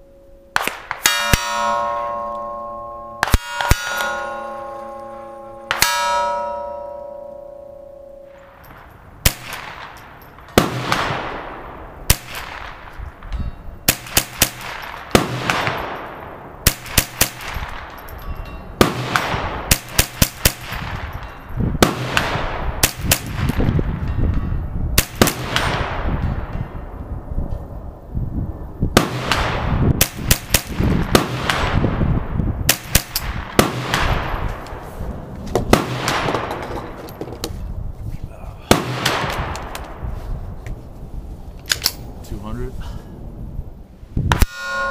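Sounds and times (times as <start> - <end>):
rifle gunshots with echo: 0.6 - 2.6, 3.2 - 6.7, 8.3 - 13.3, 13.9 - 18.0, 18.8 - 24.1, 25.0 - 26.8, 28.9 - 34.8, 35.6 - 36.6, 38.7 - 40.0.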